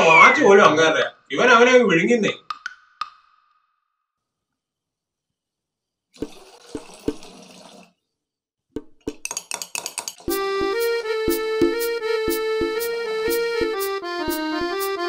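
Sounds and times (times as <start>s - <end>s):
liquid pouring: 6.2s - 8.0s
spoon clinking against glass: 9.1s - 10.3s
keyboard music with beat: 10.3s - 15.0s.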